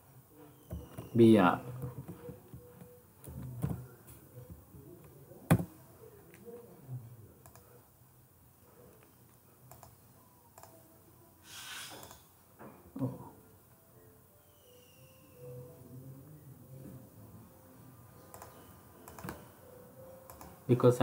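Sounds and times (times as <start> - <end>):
keyboard typing: 18.2 - 20.7.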